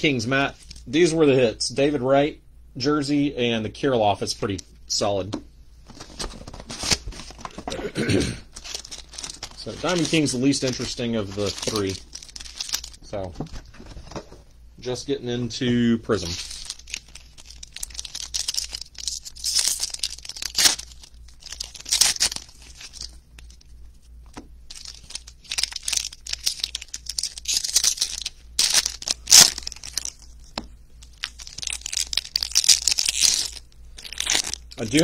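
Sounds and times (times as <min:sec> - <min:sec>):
foil wrappers tearing and crinkling: 0:05.9 - 0:07.8, 0:08.5 - 0:13.1, 0:16.1 - 0:23.7, 0:24.3 - 0:35.0.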